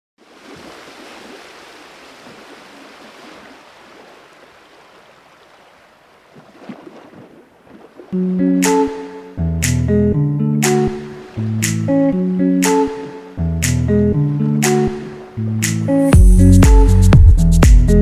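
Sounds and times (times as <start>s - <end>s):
plucked guitar music: 8.1s - 18.0s.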